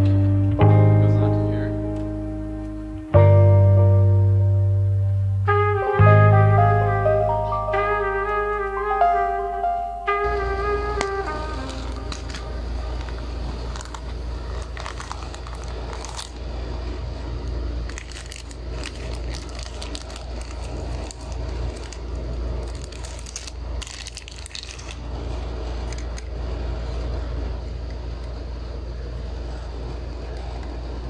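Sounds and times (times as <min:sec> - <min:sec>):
steady low rumble: 0:00.0 - 0:31.0
plastic bag crinkling: 0:11.0 - 0:16.9, 0:17.8 - 0:26.3.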